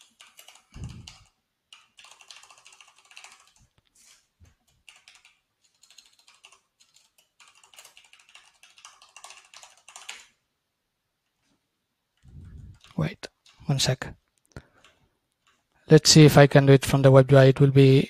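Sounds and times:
faint keyboard typing: 0.0 - 10.4, 11.2 - 15.9.

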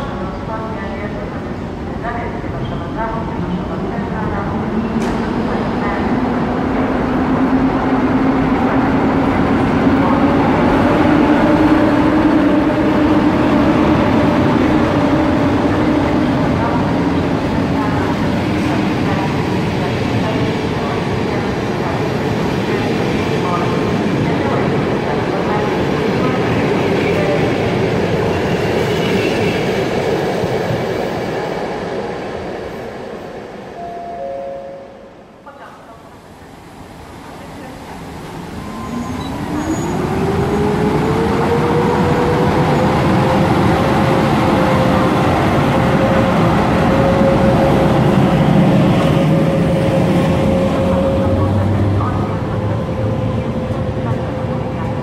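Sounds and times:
electric locomotive hum: 36.4 - 55.0
train coaches rolling on rails: 37.4 - 55.0.

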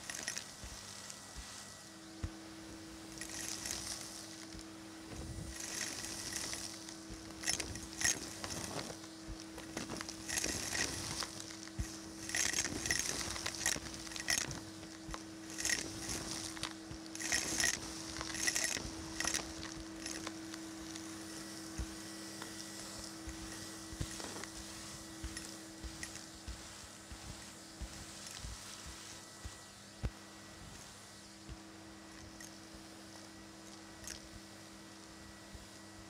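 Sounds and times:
vacuum cleaner humming: 0.0 - 36.0
debris rattling up vacuum tube: 3.2 - 4.6, 5.2 - 21.0.

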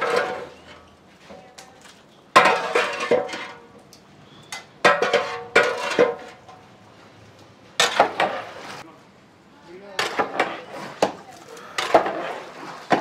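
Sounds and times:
metal ladle scraping and clanking pot: 4.4 - 6.4.

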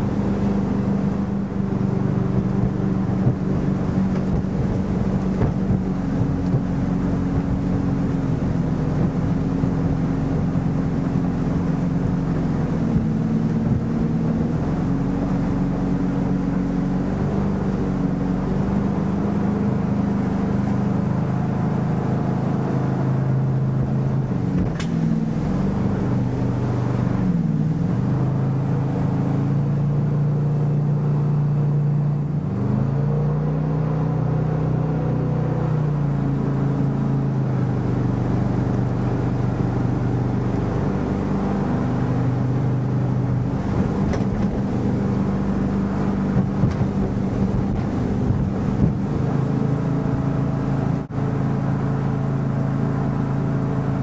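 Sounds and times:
motorboat engine running: 0.0 - 54.0
water rushing past: 37.1 - 54.0.

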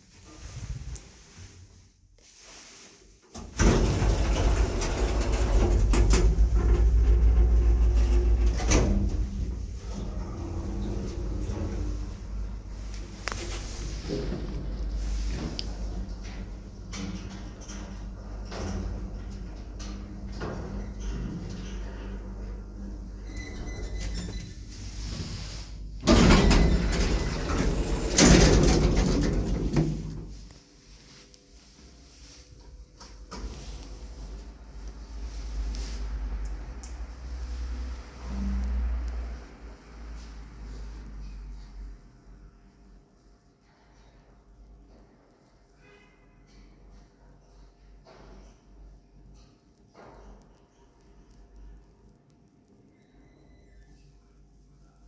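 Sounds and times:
low rumble of lift: 2.4 - 44.0
lift door banging shut: 26.0 - 30.3.

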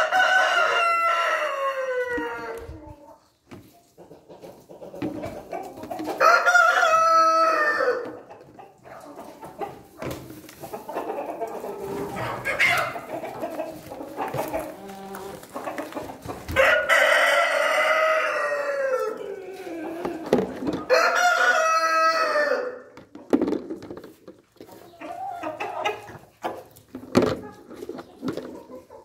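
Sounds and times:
rooster crowing: 0.0 - 2.6, 6.2 - 8.1, 16.6 - 19.2, 20.9 - 22.8
hens clucking: 0.0 - 29.0.

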